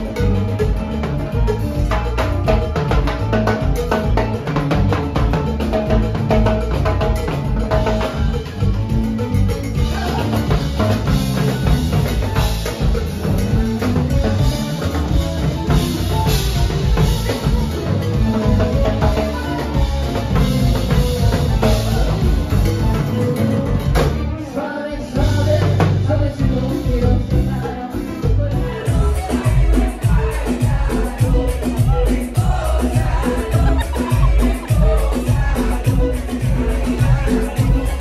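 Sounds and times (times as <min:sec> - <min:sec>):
latin band playing: 0:00.0 - 0:38.0
person singing: 0:09.7 - 0:38.0.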